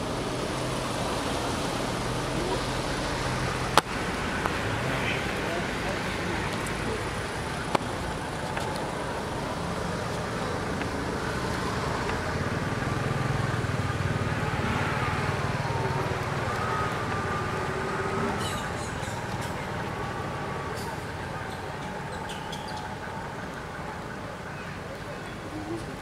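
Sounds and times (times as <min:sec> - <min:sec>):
road traffic rumble: 0:00.0 - 0:26.0
vehicle engine hum: 0:00.0 - 0:26.0.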